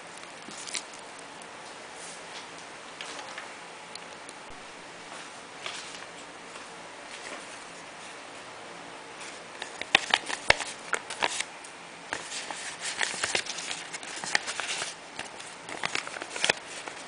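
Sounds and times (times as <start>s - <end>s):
paper crinkling: 0.0s - 1.4s, 5.6s - 6.2s, 9.2s - 11.5s, 12.1s - 17.0s.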